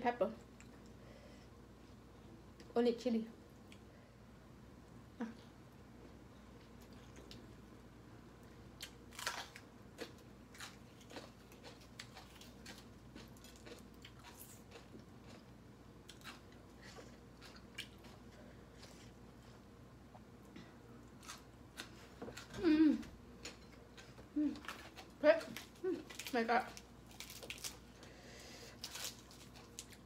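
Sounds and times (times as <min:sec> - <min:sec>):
person chewing crunchy food: 0:08.8 - 0:20.3, 0:21.0 - 0:22.6, 0:23.4 - 0:30.0.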